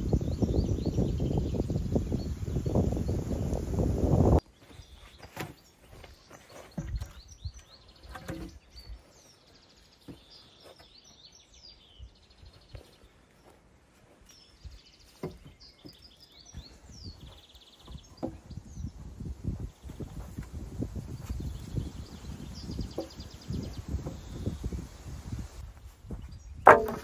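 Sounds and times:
small birds chirping: 0:00.0 - 0:27.0
light knocks and rustles: 0:15.1 - 0:16.6.

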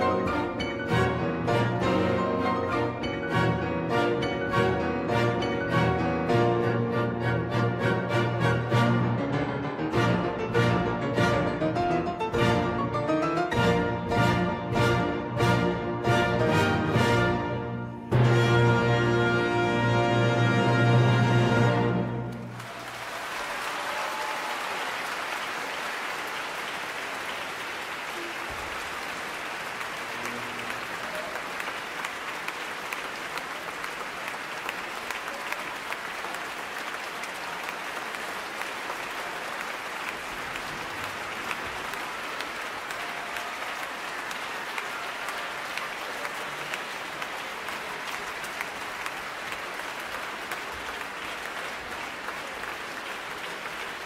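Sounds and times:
audience applauding: 0:00.0 - 0:06.0, 0:21.6 - 0:54.0.

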